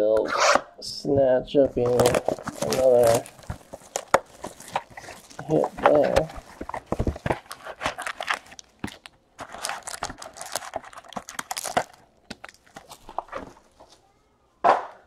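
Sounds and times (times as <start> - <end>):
cards and boxes knocking together: 1.8 - 13.6
wrappers crinkling and tearing: 1.8 - 14.0.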